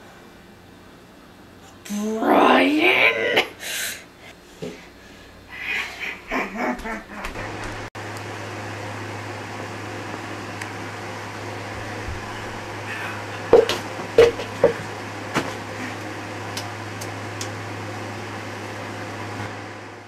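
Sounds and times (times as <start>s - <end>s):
appliance fan hum: 0.0s - 20.0s
sharp knocks and taps: 13.5s - 14.8s.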